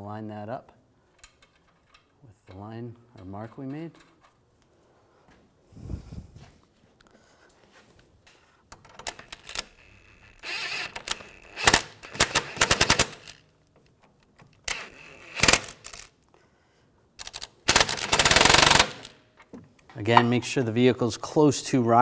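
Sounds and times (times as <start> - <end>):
impact wrench rattling: 14.4 - 16.1, 17.2 - 19.3.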